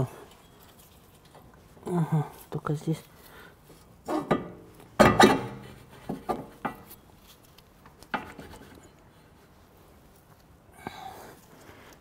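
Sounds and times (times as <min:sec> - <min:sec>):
steel tools clanking: 0:04.1 - 0:06.9.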